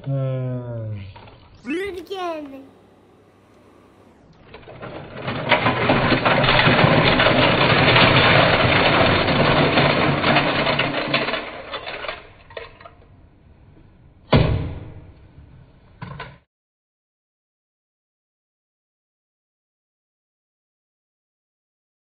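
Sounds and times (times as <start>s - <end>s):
toy cars clattering onto a pile: 4.6s - 13.0s.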